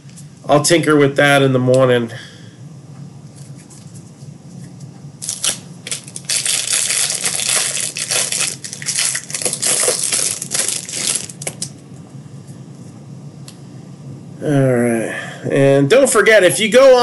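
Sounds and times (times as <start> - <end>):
plastic wrapper crinkling: 5.2 - 11.7.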